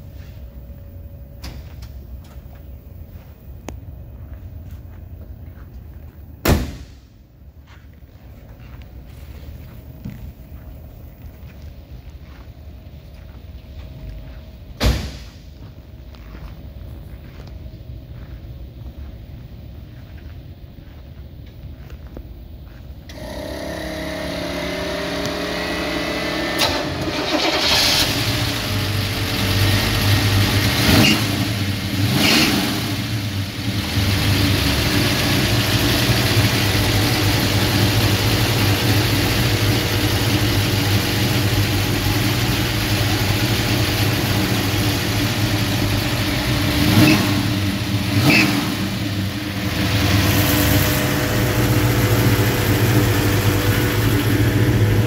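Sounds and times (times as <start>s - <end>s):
car engine starting and idling: 0.0s - 7.5s, 8.5s - 55.0s
engine revving: 23.1s - 55.0s.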